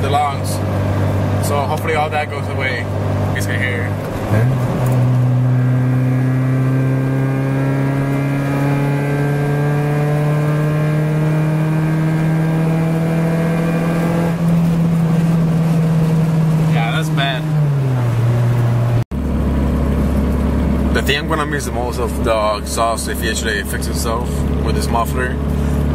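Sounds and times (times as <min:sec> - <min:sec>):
loud car exhaust droning: 0:00.0 - 0:25.9.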